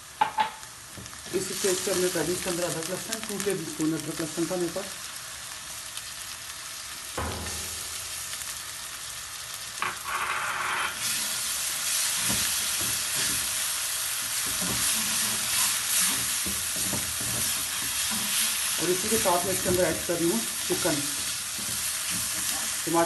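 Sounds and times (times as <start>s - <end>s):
food sizzling in hot oil: 0.0s - 23.0s
wooden spatula scraping wok: 11.0s - 22.8s.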